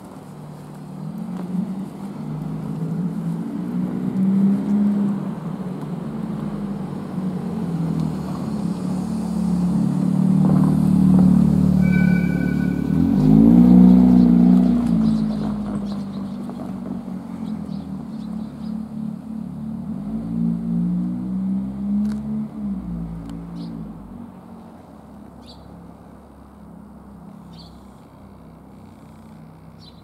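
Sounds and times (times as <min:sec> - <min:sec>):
vehicle engine hum: 0:00.0 - 0:30.0.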